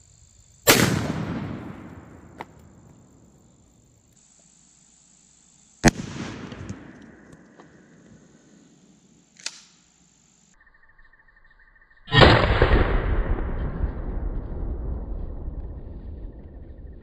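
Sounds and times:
shotgun blast with rolling echo: 0:00.6 - 0:02.4, 0:05.8 - 0:07.3, 0:12.1 - 0:15.2.

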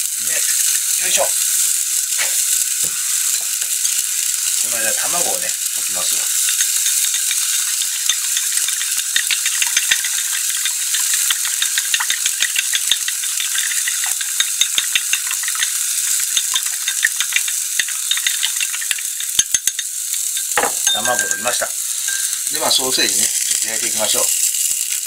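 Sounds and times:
sausage sizzling in oil: 0:00.0 - 0:25.0
chopsticks clicking against a bowl: 0:06.4 - 0:20.5.

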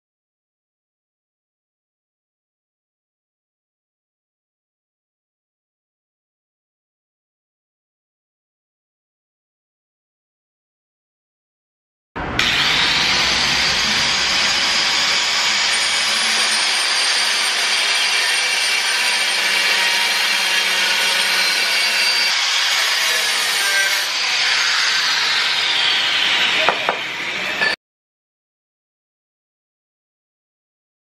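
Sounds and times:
angle grinder cutting steel pipe: 0:12.3 - 0:27.8.

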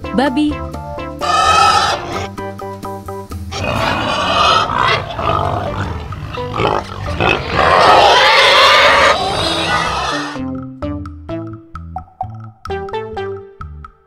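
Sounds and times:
light background tune: 0:00.0 - 0:14.0
pig calls: 0:01.2 - 0:02.3, 0:03.5 - 0:10.4.

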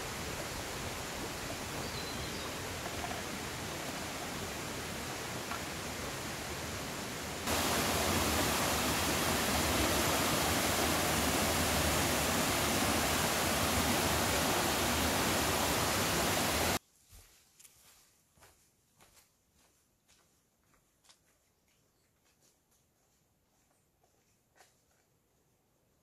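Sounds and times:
water rushing: 0:00.0 - 0:16.8.

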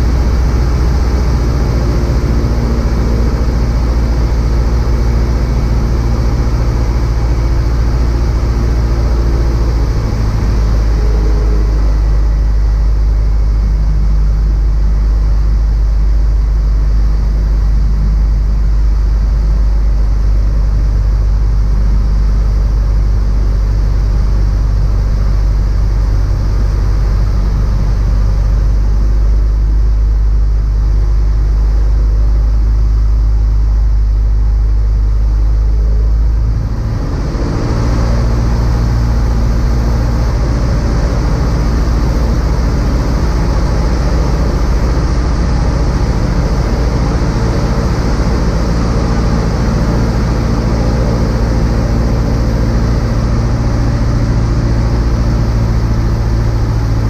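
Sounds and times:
light aircraft engine and propeller: 0:00.0 - 0:57.0.

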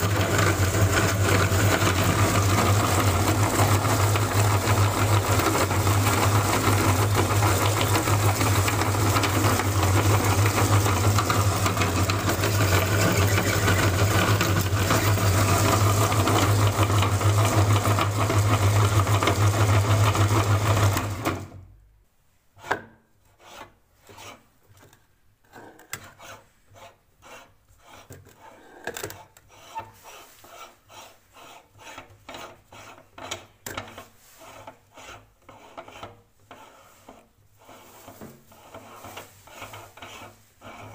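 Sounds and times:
electric meat grinder humming: 0:00.0 - 0:21.6
scraping and clicking on metal: 0:07.7 - 0:16.6, 0:22.6 - 0:40.9.

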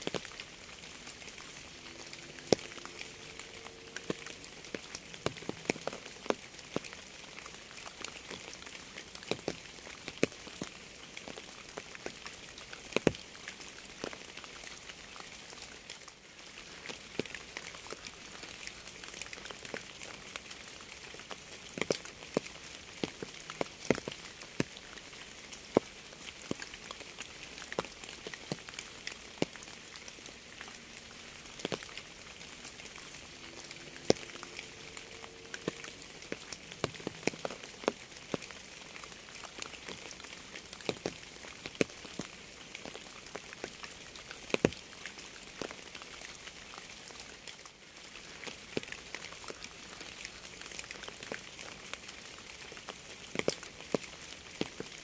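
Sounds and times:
rain hissing: 0:00.0 - 0:08.5, 0:27.4 - 0:41.4
raindrops tapping on a surface: 0:00.0 - 0:55.0.

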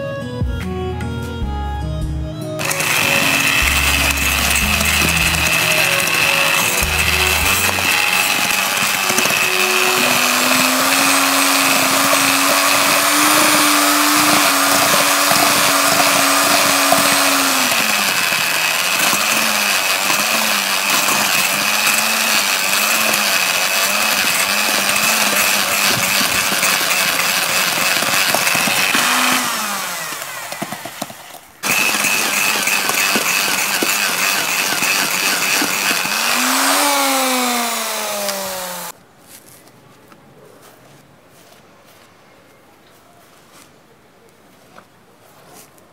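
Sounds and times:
electric drill with wire brush grinding: 0:02.6 - 0:39.0.

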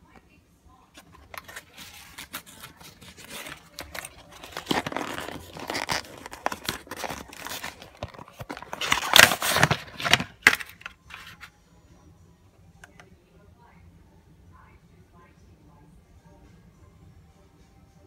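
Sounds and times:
cardboard and plastic rustling: 0:01.0 - 0:11.5.

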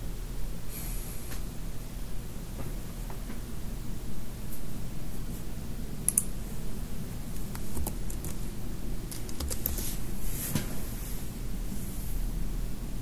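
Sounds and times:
low steady hum: 0:00.0 - 0:13.0
keyboard keys clicking: 0:09.1 - 0:09.8.

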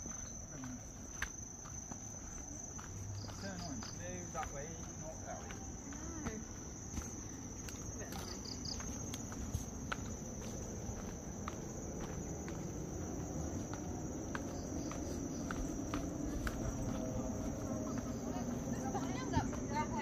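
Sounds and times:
footsteps on a trail: 0:00.0 - 0:20.0
insects chirring: 0:00.0 - 0:20.0
low outdoor rumble: 0:09.0 - 0:20.0.

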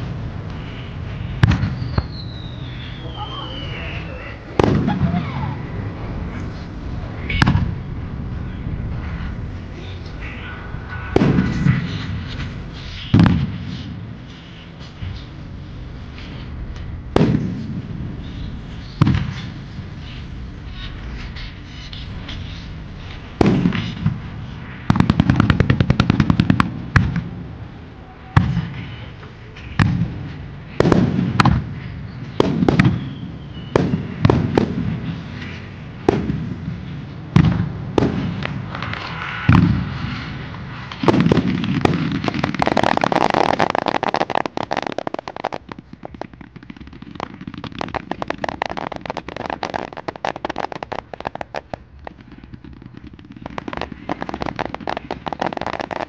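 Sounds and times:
fireworks bursting with bangs: 0:00.0 - 0:56.0
crackling of small pops: 0:18.7 - 0:27.3, 0:28.4 - 0:39.7, 0:40.5 - 0:56.0.

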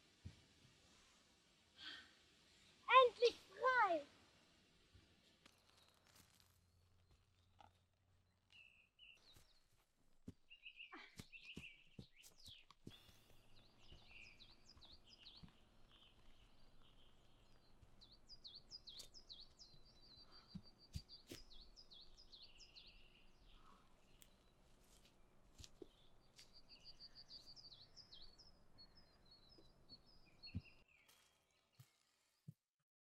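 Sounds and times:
birds chirping: 0:07.0 - 0:31.9
footsteps on a stony path: 0:09.2 - 0:22.0, 0:24.6 - 0:27.6.

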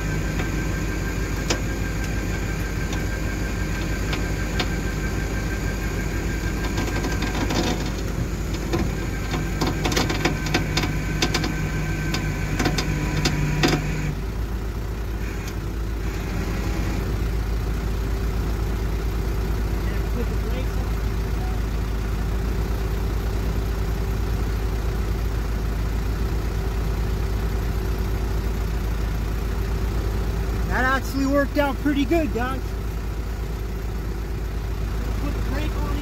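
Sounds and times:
low hum: 0:00.0 - 0:14.4
diesel truck engine running: 0:00.0 - 0:36.0.

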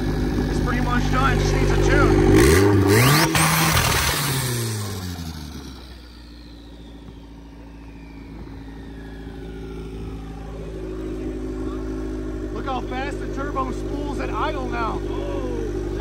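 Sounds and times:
car engine revving to idle: 0:00.0 - 0:16.0
turbo whistle gliding down: 0:06.2 - 0:10.7.

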